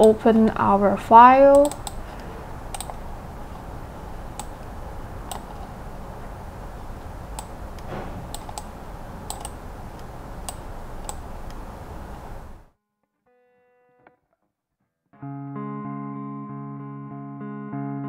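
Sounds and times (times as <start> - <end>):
room hum: 0.0 - 12.8
laptop keys and mouse clicks: 1.5 - 3.1, 4.3 - 4.7, 5.3 - 5.7, 7.4 - 11.6.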